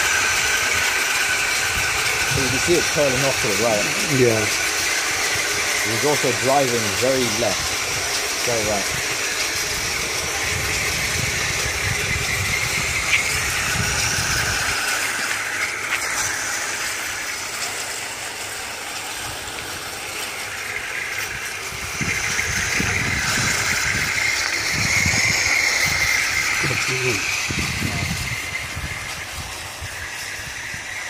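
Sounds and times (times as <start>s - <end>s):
toy tank motor whine: 0.0s - 31.0s.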